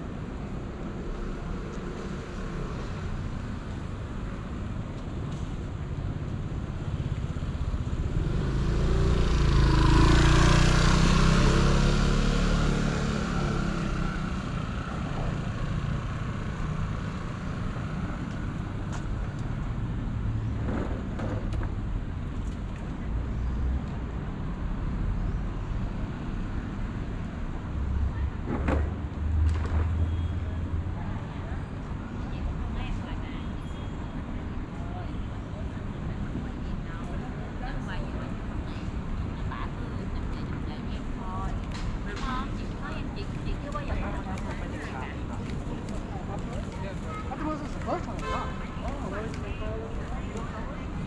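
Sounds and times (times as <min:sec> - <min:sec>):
city street traffic: 0:00.0 - 0:51.0
vehicle passing by: 0:07.7 - 0:17.9.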